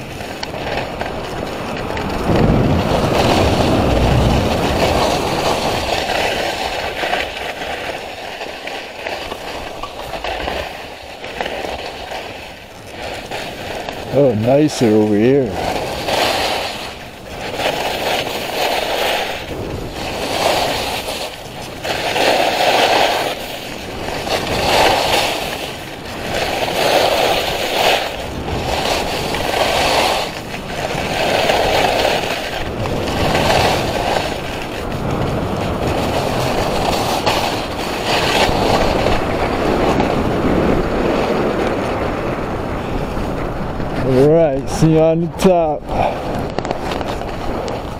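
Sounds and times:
skis scraping on snow: 0.0 - 47.9.

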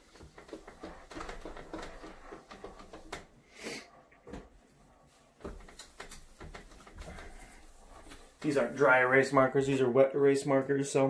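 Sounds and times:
rag wiping whiteboard: 0.0 - 3.9, 4.8 - 9.6.

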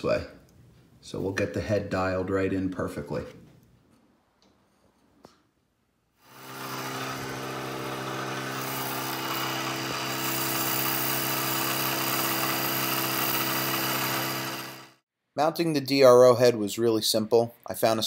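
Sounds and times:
milling machine motor hum: 6.3 - 15.0.

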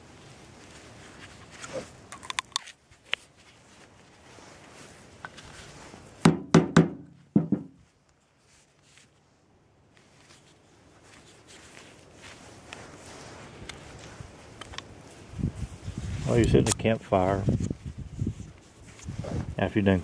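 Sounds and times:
sharp knocks on wooden block: 6.2 - 7.8.

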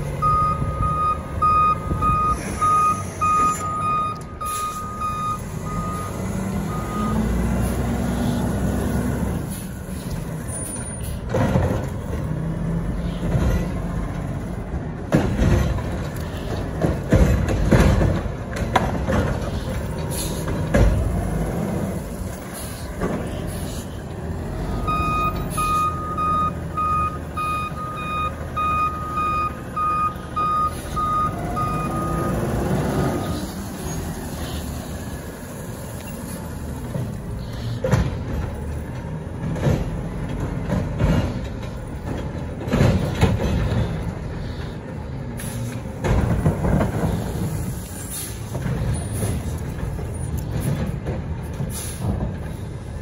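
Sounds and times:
truck reversing alarm beeping: 0.0 - 11.2, 24.5 - 34.1
metal clanks and knocks: 15.0 - 21.2, 37.8 - 44.3, 46.0 - 47.5.

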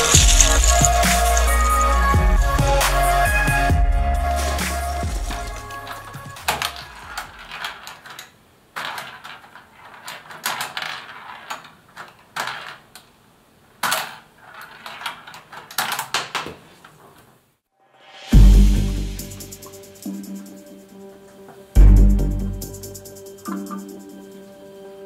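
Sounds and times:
ball clacking against bumpers: 0.0 - 3.2, 4.5 - 13.2
plastic ball rolling and rattling: 0.0 - 3.7, 4.3 - 17.4.

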